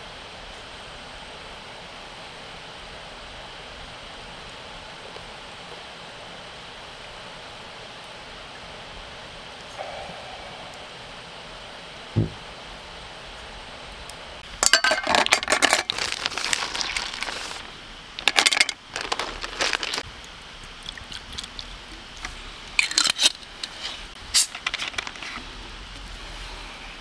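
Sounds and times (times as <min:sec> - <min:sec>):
ice cubes clinking in metal cup: 0:14.6 - 0:17.4, 0:18.2 - 0:20.0.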